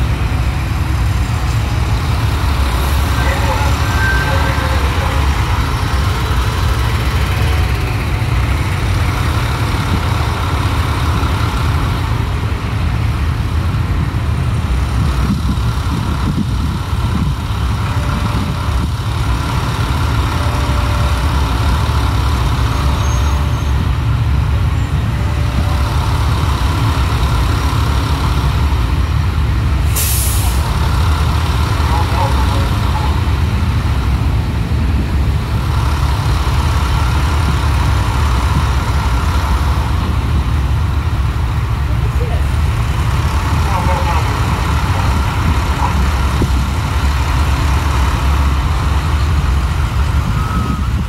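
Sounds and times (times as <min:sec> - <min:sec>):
heavy trucks rumbling: 0:00.0 - 0:51.0
air brake hiss: 0:29.9 - 0:30.6.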